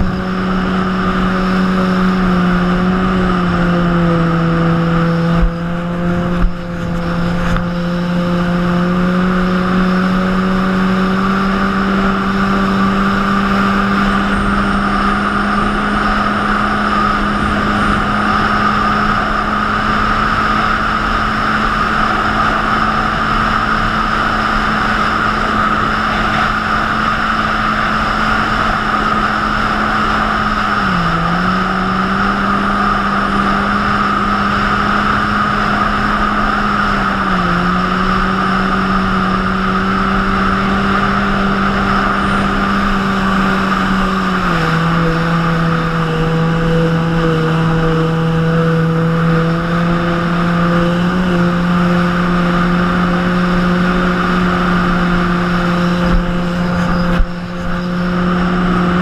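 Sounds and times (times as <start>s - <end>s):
jet ski engine running: 0.0s - 59.0s
rushing water noise: 0.0s - 59.0s.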